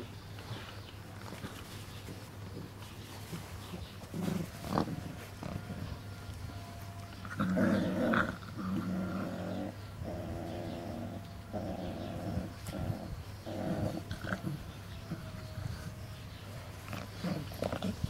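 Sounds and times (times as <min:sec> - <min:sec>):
puppies growling: 0:02.4 - 0:06.0, 0:07.0 - 0:18.0.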